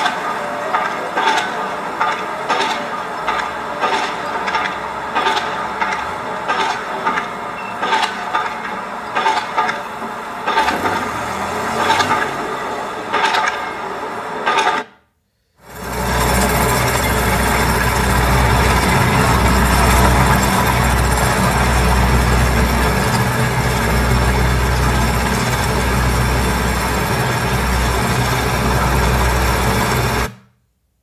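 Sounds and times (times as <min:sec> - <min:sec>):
construction machinery running: 0:00.0 - 0:14.8, 0:15.6 - 0:30.4.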